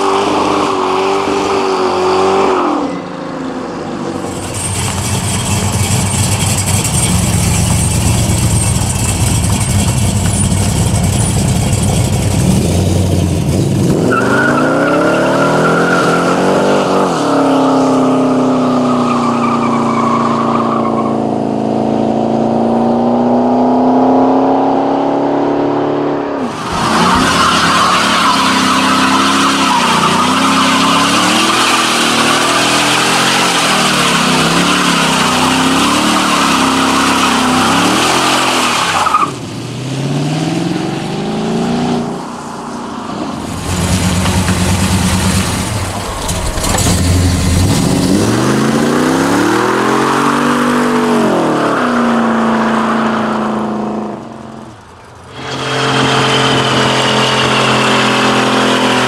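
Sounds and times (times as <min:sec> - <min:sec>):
car engine revving: 0:20.7 - 0:59.0
tyres hissing and squealing: 0:26.4 - 0:39.3.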